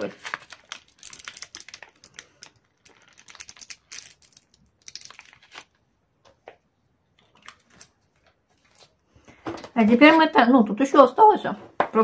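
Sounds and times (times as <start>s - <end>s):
plastic pouch crinkling: 0.0s - 5.8s.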